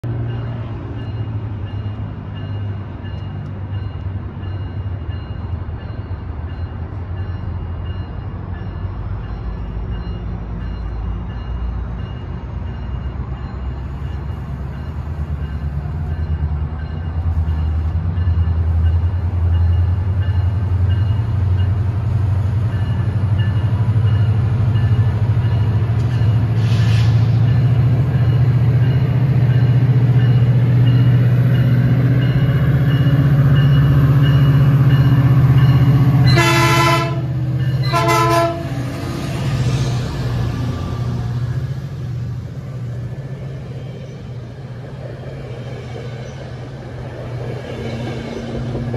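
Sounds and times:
diesel locomotive engine drone: 0:00.0 - 0:48.9
train horn blasts: 0:36.1 - 0:38.9.

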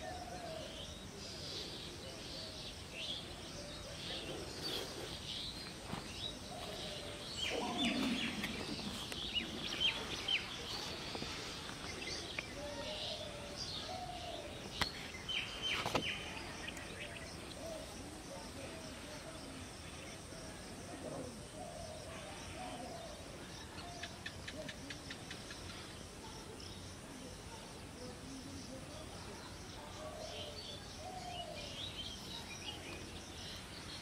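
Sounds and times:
birds chirping: 0:00.0 - 0:18.3.

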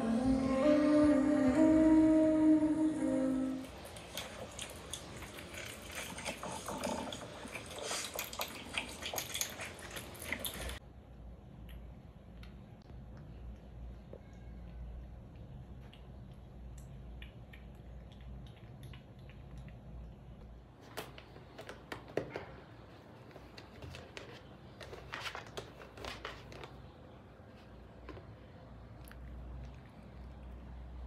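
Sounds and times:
low steady hum: 0:00.0 - 0:31.0
kitten chewing wet food: 0:03.6 - 0:10.8, 0:13.1 - 0:22.1.

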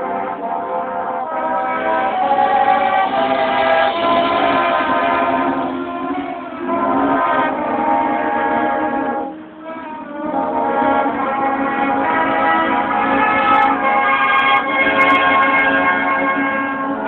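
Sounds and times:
marching band holding chords: 0:00.0 - 0:17.0.

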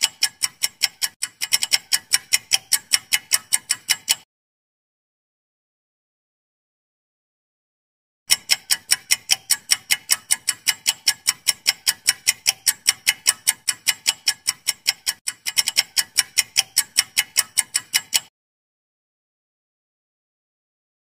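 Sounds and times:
clock ticking fast: 0:00.0 - 0:04.3, 0:08.3 - 0:18.3.

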